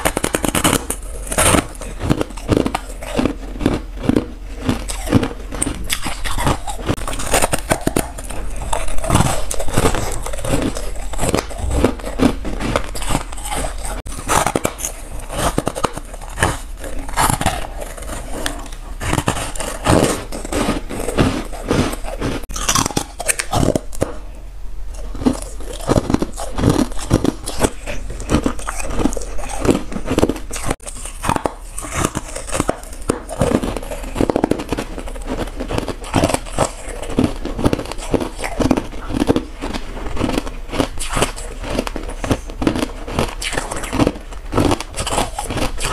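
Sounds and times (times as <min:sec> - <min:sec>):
crunching ice: 0:00.0 - 0:24.2, 0:25.0 - 0:45.9.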